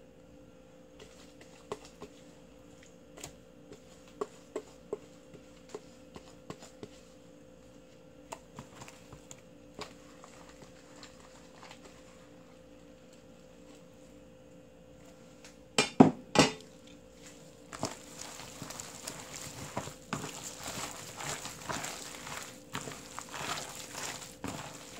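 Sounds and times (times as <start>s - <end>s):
faint steady hum: 0.0s - 24.9s
utensil tapping mixing bowl: 17.7s - 24.9s.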